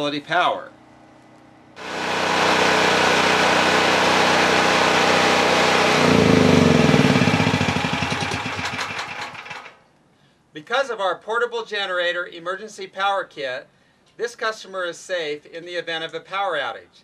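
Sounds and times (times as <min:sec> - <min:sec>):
generator engine running and stopping: 0:01.4 - 0:09.8.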